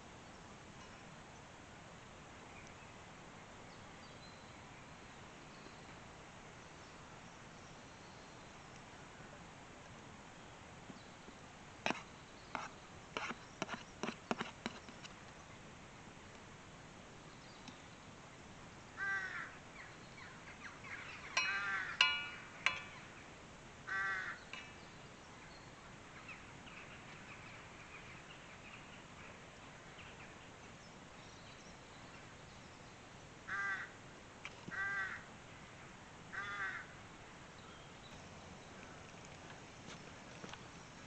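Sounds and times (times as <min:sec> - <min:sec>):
crow cawing: 0:19.0 - 0:19.6, 0:21.4 - 0:22.1, 0:23.9 - 0:24.4, 0:33.5 - 0:34.0, 0:34.7 - 0:35.3, 0:36.3 - 0:37.0.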